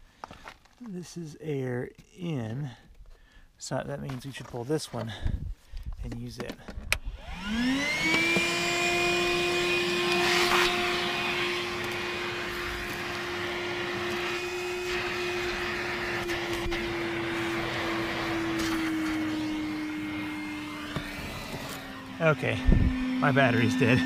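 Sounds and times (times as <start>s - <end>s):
shop vacuum running: 7.0s - 24.0s.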